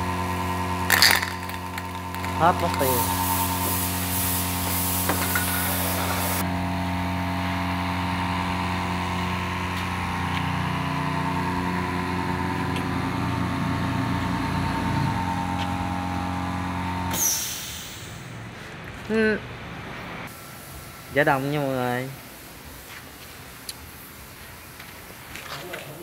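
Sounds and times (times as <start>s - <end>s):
air compressor humming: 0.0s - 18.4s
compressor air hiss: 0.9s - 6.4s, 17.1s - 18.3s, 20.3s - 25.2s
spray paint can hissing: 0.9s - 6.4s.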